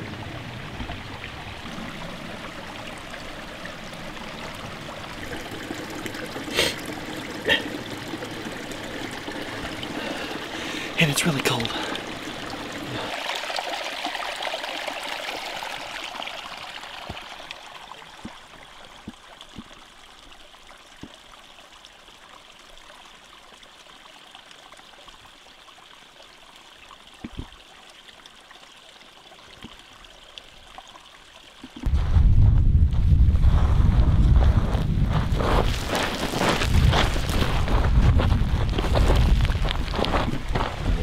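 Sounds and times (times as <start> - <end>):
running water rushing: 0.0 - 32.0, 35.1 - 41.0
wind buffeting microphone: 31.9 - 35.9, 36.6 - 41.0.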